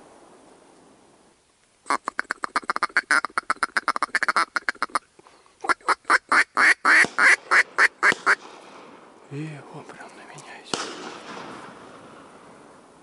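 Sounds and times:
duck quacking: 1.9 - 5.0, 5.6 - 8.4.

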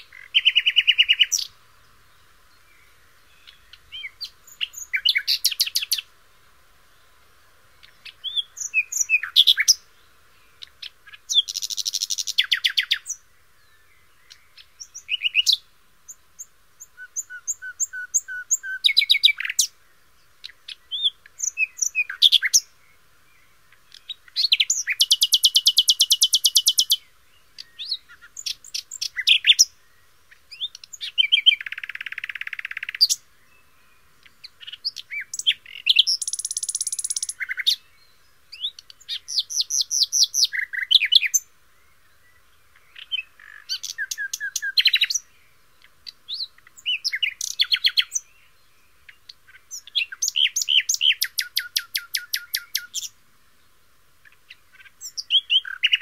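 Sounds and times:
bird calls: 0.0 - 6.1, 7.0 - 53.2, 54.2 - 56.0.

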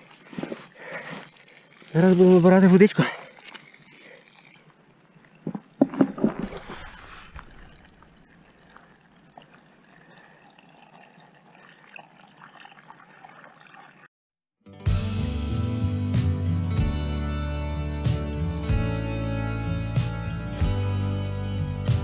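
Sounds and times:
water trickling into plastic bottle: 0.0 - 14.1
bottle handling knocks: 5.5 - 6.6.

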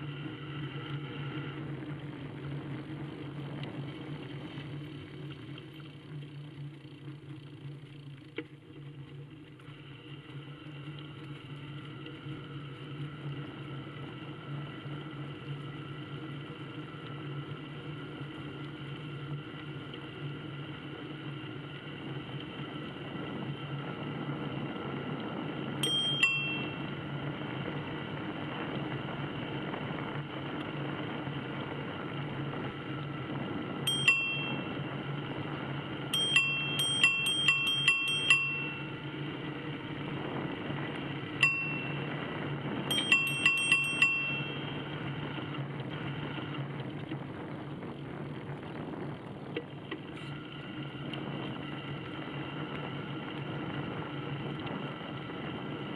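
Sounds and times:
steady riding hum: 0.0 - 55.9
bicycle bell ringing: 25.8 - 27.0, 33.9 - 35.2, 36.1 - 39.4, 41.4 - 45.0.

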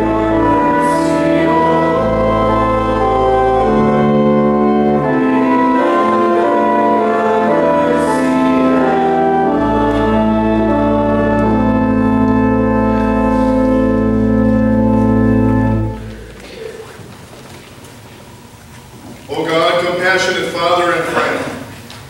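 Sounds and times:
deep organ pedal bass: 0.0 - 16.5
church organ chords: 0.0 - 17.1.

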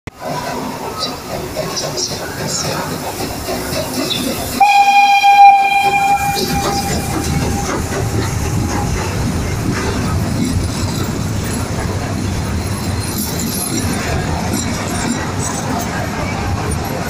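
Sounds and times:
train carriages rumbling: 0.1 - 17.0
steam locomotive whistle: 4.6 - 9.0
wheels clicking over rail joints: 5.6 - 17.0.

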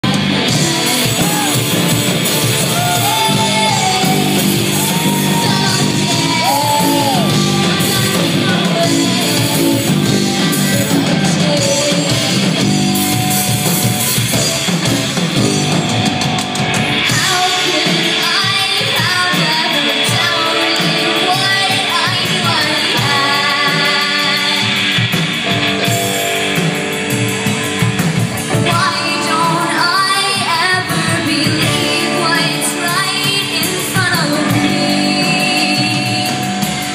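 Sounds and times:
person singing and yelling: 0.0 - 12.6
bass guitar: 0.0 - 36.9
drums: 0.0 - 36.9
electric guitar: 0.0 - 36.9.

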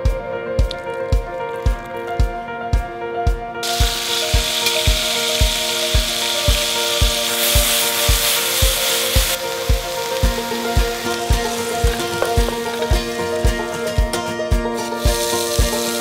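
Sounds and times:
background music with steady beat: 0.0 - 16.0
meat sizzling in hot oil: 3.6 - 13.5, 14.8 - 16.0.

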